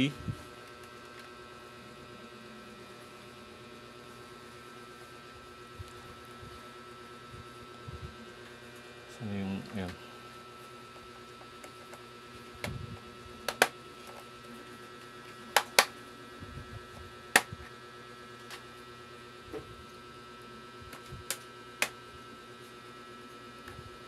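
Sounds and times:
electrical hum: 0:00.0 - 0:24.0
hard objects clicking and tapping: 0:13.4 - 0:14.2.

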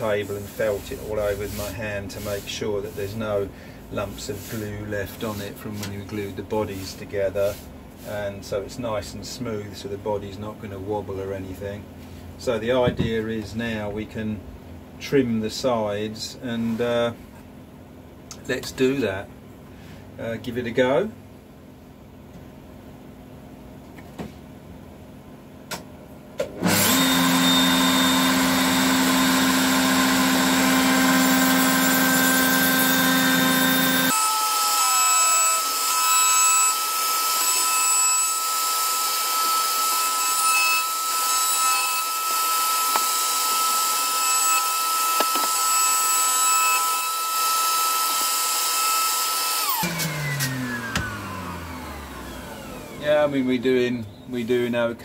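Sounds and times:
router high whine: 0:26.4 - 0:53.6.

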